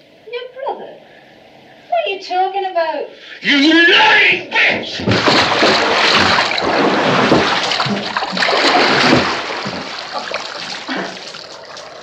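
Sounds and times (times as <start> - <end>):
water splashing in bath: 5.0 - 12.0.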